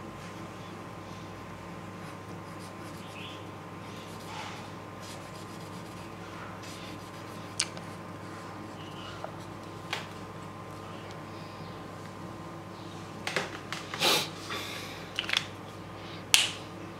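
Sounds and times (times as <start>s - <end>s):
marker rubbing on paper: 2.0s - 3.3s, 4.0s - 8.0s.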